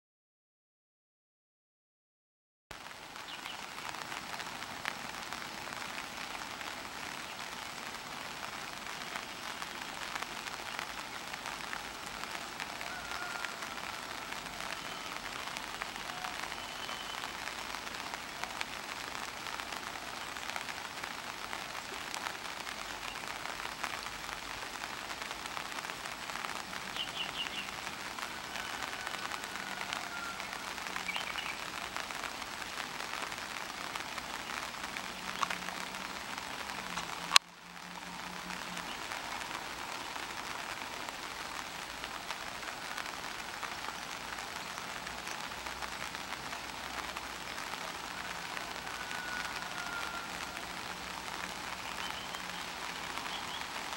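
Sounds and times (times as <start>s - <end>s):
light rain falling: 2.7s - 53.9s
faint high bird chirps: 16.0s - 17.3s.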